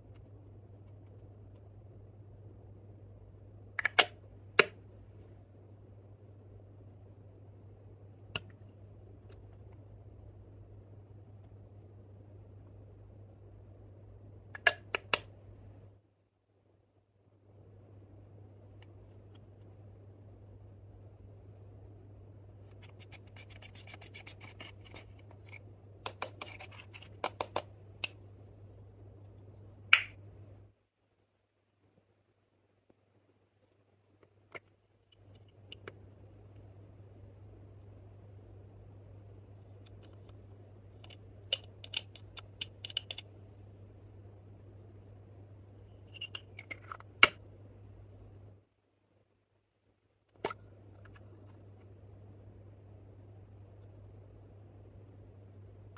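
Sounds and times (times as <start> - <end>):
gritty scratching of powder: 22.6 - 25.2.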